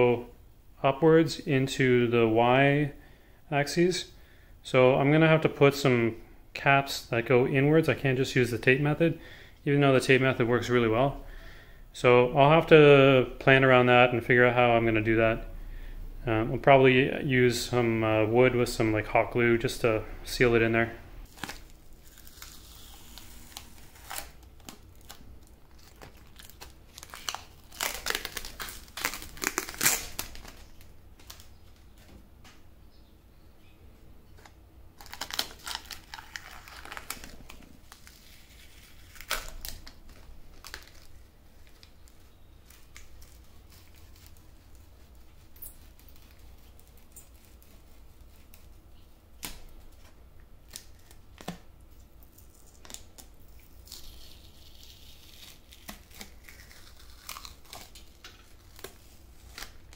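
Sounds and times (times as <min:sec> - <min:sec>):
tape peeling and crinkling: 0:21.2 - 0:32.6, 0:34.3 - 0:59.9.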